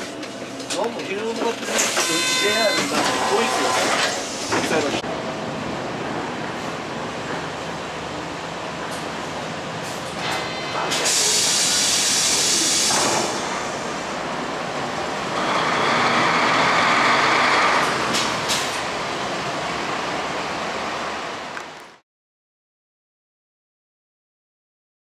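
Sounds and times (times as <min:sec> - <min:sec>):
bus air brake hiss: 0:11.0 - 0:13.9
bus engine pulling away: 0:11.1 - 0:21.8.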